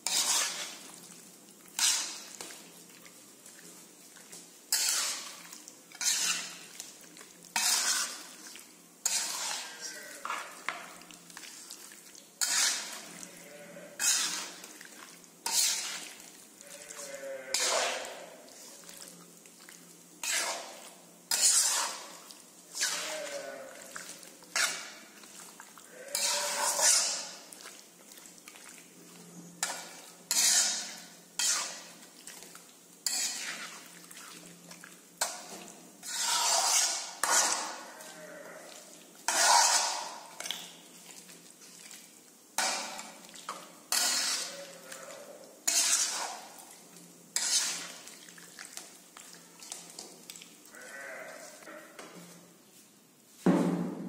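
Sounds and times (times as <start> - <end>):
spatula scraping in iron wok: 0.0 - 1.1, 1.7 - 2.8, 4.3 - 11.7, 12.4 - 14.8, 15.4 - 16.4, 17.0 - 18.8, 20.2 - 27.5, 29.6 - 32.0, 33.0 - 34.5, 35.2 - 41.8, 42.6 - 44.8, 45.6 - 48.2.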